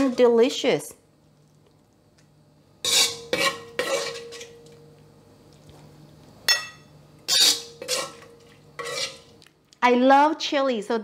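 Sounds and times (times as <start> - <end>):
metal spoon scraping wok: 2.8 - 4.5, 7.3 - 9.3.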